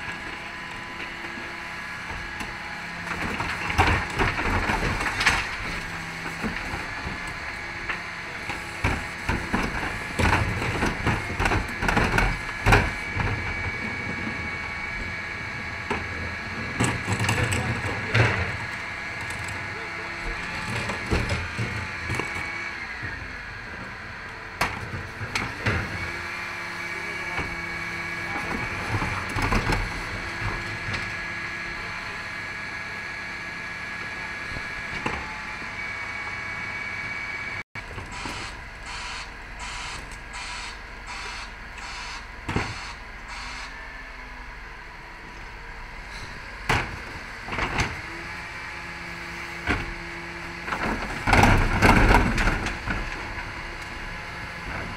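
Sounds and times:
hydraulic bin lift whine: 0.0 - 54.9
wheelie bins rattling and banging: 46.2 - 54.9.

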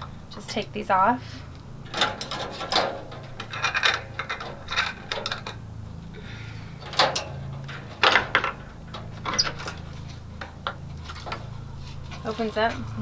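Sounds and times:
clips clicking on gate latch: 6.8 - 9.8.

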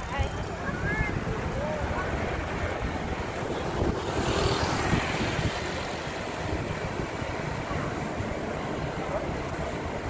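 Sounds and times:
rushing road noise: 0.0 - 10.0.

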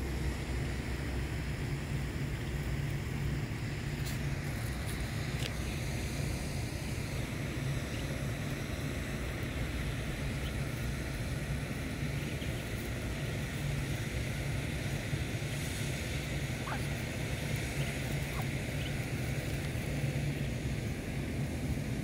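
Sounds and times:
low outdoor rumble: 0.0 - 22.0
ducklings peeping: 7.0 - 21.2.

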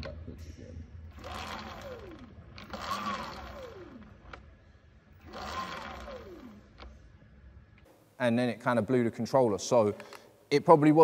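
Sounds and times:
chain whirring: 1.1 - 4.4, 5.1 - 6.9
electric motor whine: 1.1 - 4.5, 5.2 - 6.9.

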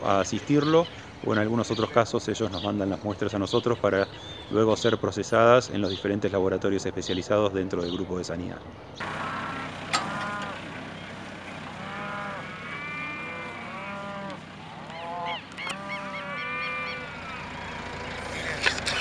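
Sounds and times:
cattle mooing: 9.0 - 10.8, 11.5 - 19.0.

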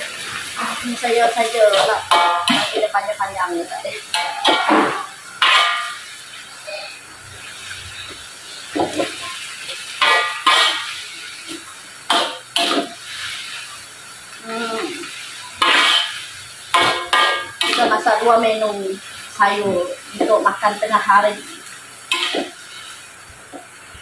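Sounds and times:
steady hiss: 0.0 - 24.0
metal ladle scraping wok: 4.1 - 6.1, 10.0 - 11.0, 15.6 - 16.2, 22.1 - 23.0.

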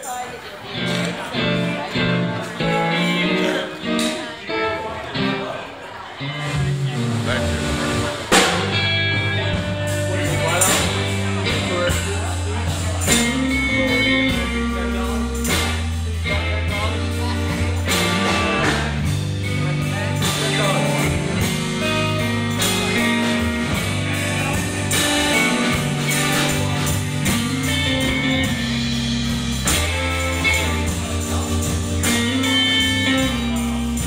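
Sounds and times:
electric guitars: 0.0 - 34.0
electric bass: 0.8 - 4.3, 6.2 - 34.0
drum kit: 0.8 - 5.5, 6.4 - 34.0.

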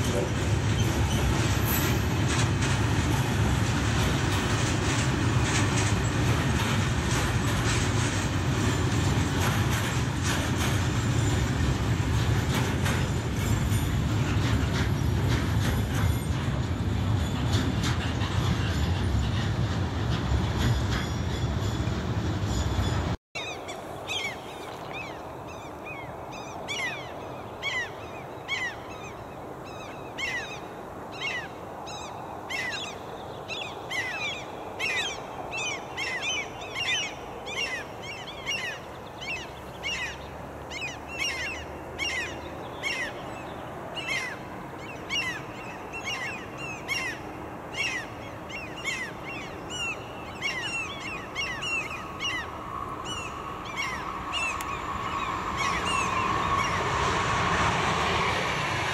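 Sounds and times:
electric train running: 0.0 - 23.2, 41.5 - 58.9
bird calling: 23.4 - 56.8.

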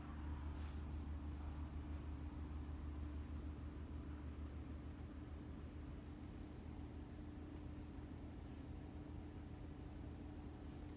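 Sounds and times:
light hiss: 0.0 - 10.9.

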